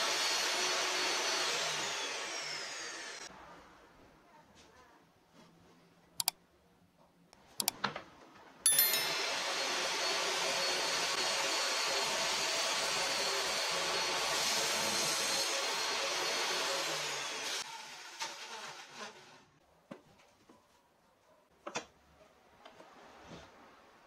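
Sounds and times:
electric motor tool running: 0.0s - 3.3s, 9.0s - 17.6s.

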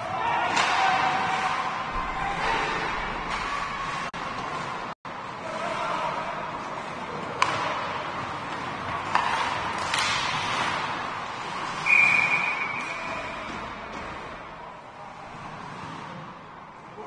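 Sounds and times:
skates scraping on ice: 0.6s - 17.0s
sharp hockey clacks: 7.3s - 14.5s
referee's whistle: 11.8s - 13.4s.

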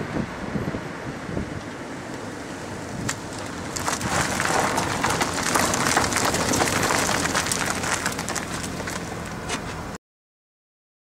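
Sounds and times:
wind buffeting microphone: 0.0s - 9.3s
tyre crunching over gravel: 1.9s - 10.0s.

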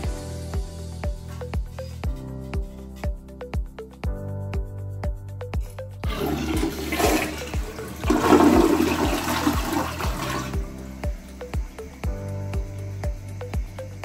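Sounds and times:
background music with steady beat: 0.0s - 14.0s
toilet flushing: 6.0s - 10.6s.

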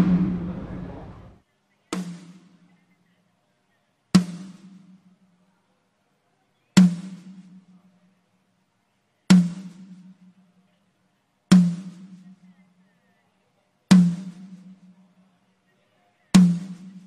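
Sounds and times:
drum hit ringing low: 0.0s - 1.4s.

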